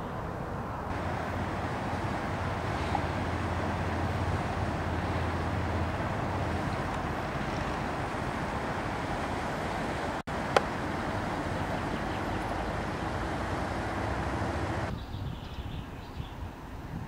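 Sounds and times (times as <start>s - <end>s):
outdoor background noise: 0.0s - 17.0s.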